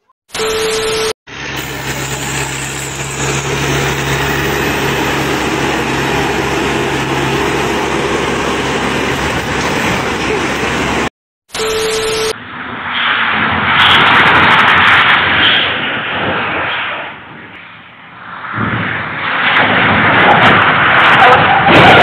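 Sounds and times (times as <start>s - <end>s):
harvester engine running: 1.3s - 11.1s.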